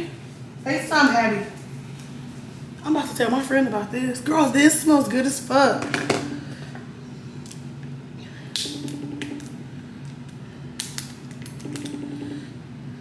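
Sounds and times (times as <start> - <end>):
low hum: 5.9 - 13.0
phone ring tone: 8.7 - 9.6, 11.6 - 12.5.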